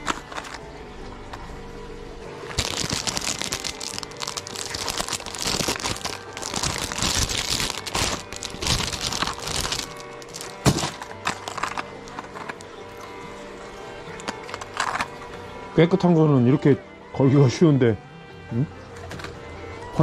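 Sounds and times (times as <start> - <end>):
plastic packaging crinkling: 0.0 - 0.6, 2.5 - 13.1, 14.1 - 15.2.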